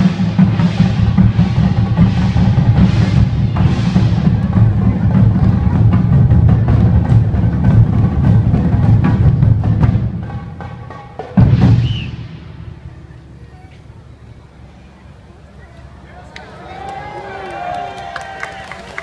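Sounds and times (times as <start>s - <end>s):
taiko drums playing rhythm: 0.0s - 13.0s
deep drum boom: 0.0s - 13.3s.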